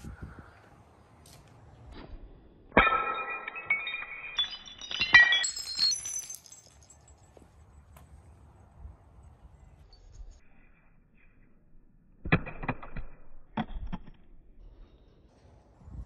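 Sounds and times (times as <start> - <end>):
glassy chime-like ringing: 3.0 - 7.1.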